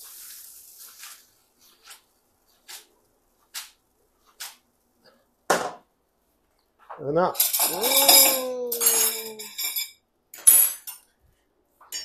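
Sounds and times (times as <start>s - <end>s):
pasta swishing in a pan: 0.0s - 5.0s
sizzle: 0.0s - 5.0s.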